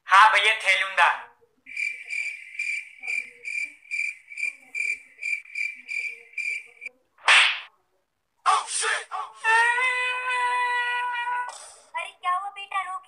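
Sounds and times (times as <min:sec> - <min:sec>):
cricket-like chirping trill: 0:01.7 - 0:06.9.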